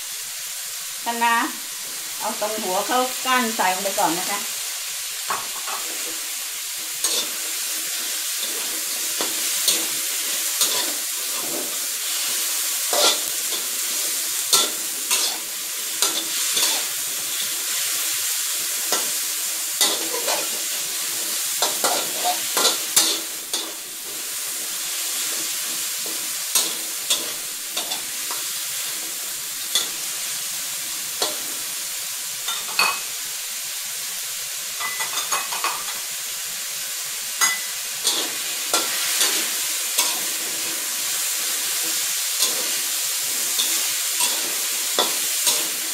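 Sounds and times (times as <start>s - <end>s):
food sizzling in a wok: 0.0s - 45.9s
spatula scraping a wok: 5.0s - 31.8s, 37.4s - 45.9s.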